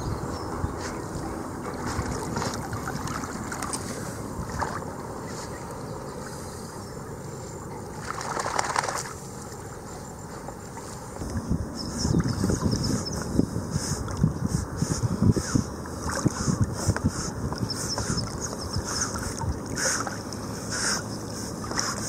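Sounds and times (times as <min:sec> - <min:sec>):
wind rumbling on microphone: 0:00.0 - 0:09.2, 0:10.6 - 0:22.0
water sloshing: 0:00.6 - 0:05.1
dogs splashing in water: 0:00.8 - 0:05.0, 0:07.9 - 0:09.2, 0:17.6 - 0:22.0.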